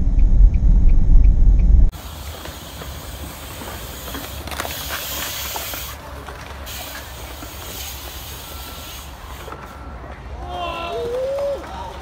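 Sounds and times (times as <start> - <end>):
tyres rolling over concrete: 2.0 - 10.3.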